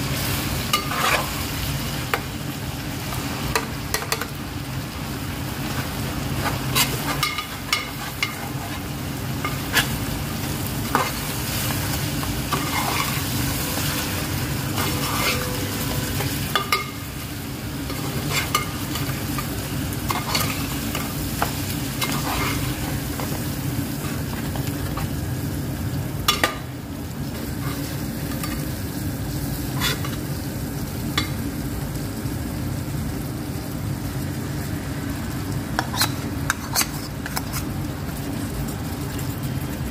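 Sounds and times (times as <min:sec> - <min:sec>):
chicken sizzling in hot oil: 0:00.0 - 0:39.9
metal spoon scraping pot: 0:14.7 - 0:16.8.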